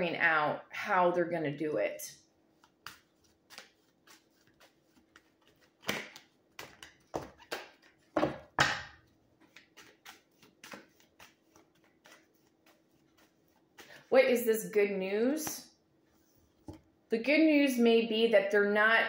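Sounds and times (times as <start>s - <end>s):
cards being shuffled: 2.5s - 8.4s, 9.0s - 14.1s
cards swishing: 2.6s - 8.0s, 9.4s - 14.1s.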